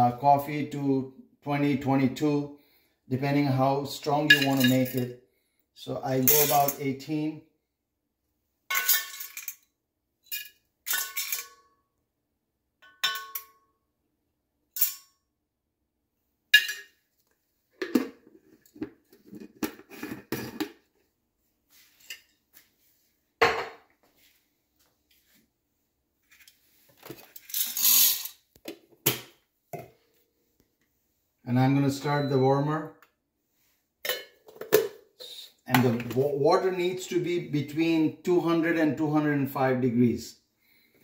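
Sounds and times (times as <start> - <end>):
metal spoon clinking on cup: 12.8 - 13.6
coffee beans rattling into cup: 27.4 - 28.3.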